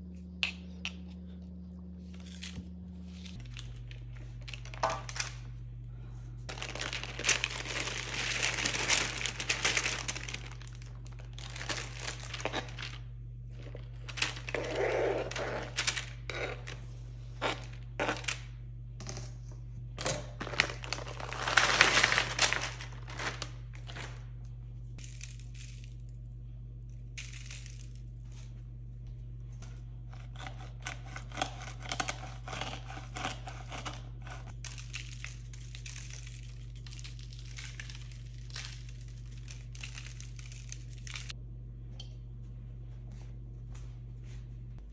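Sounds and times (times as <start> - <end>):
steady low hum: 0.0 - 44.9
parchment paper crinkling: 3.1 - 17.0, 20.4 - 24.4.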